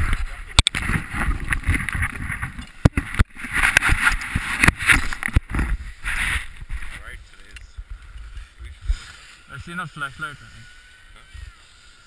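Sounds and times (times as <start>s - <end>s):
camera handling rustling: 0.6s - 8.2s.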